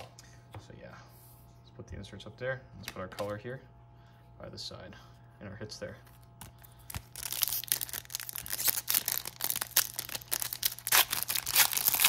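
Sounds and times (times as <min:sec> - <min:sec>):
foil wrapper crinkling and tearing: 0:06.5 - 0:12.0.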